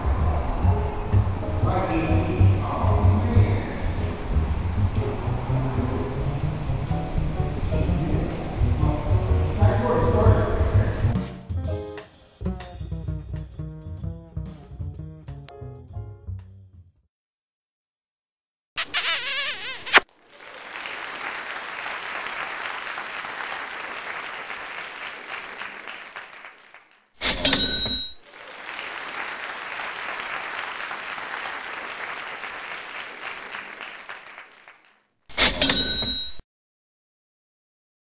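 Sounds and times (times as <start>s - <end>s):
applause: 20.1s - 27.1s, 27.9s - 35.1s
loud ringing bell-like sounds: 35.6s - 36.4s.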